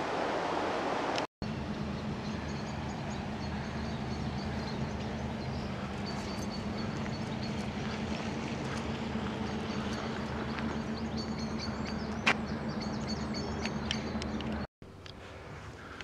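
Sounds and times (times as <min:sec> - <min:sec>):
low mechanical hum: 0:00.9 - 0:16.0
birds chirping: 0:01.4 - 0:16.0.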